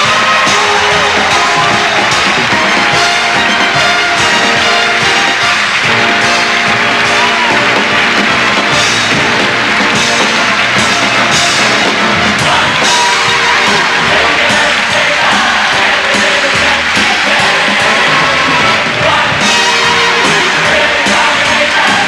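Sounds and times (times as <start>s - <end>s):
brassy show music with drums: 0.0s - 22.0s
crowd noise: 0.0s - 22.0s.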